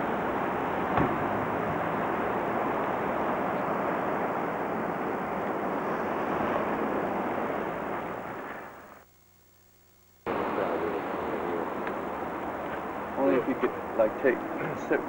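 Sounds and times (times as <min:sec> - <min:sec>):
wind buffeting microphone: 0:00.0 - 0:08.9
rushing wind: 0:00.0 - 0:09.0
surf: 0:00.0 - 0:09.0, 0:10.3 - 0:15.0.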